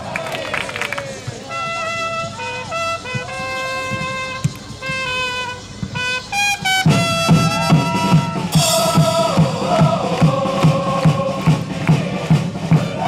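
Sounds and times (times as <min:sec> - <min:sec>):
crowd singing a chant: 0:00.0 - 0:01.5, 0:07.3 - 0:13.0
trumpet playing chant melody: 0:01.4 - 0:13.0
steady drum beat: 0:05.8 - 0:13.0.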